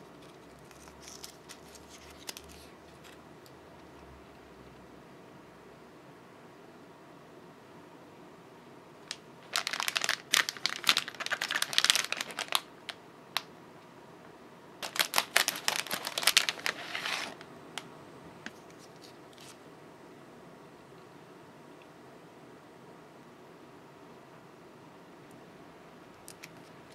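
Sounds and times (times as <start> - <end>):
plastic packaging crinkling: 0.0 - 3.2, 9.1 - 12.7, 14.8 - 17.4.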